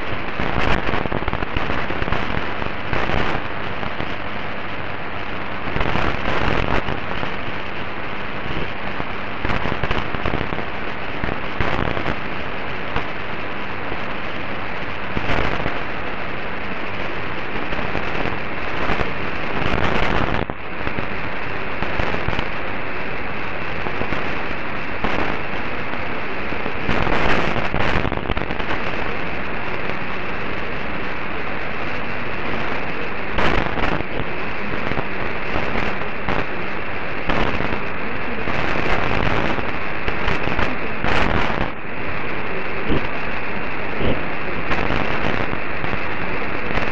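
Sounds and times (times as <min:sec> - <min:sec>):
radio static hiss: 0:00.0 - 0:46.9
static crackles: 0:00.0 - 0:46.9
weak distant radio station: 0:21.3 - 0:46.9.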